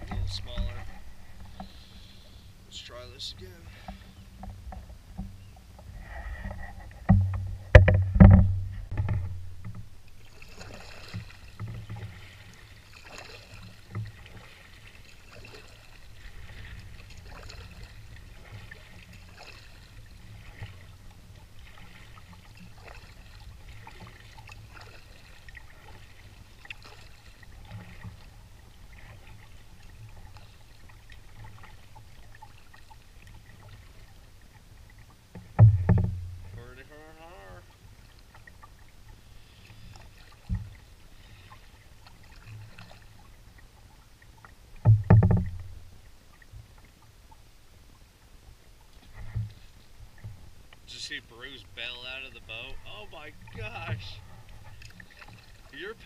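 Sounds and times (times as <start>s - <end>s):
water lapping and trickling: 0.0s - 56.0s
knocks on canoe hull: 7.0s - 9.9s, 35.3s - 36.5s, 44.8s - 45.7s.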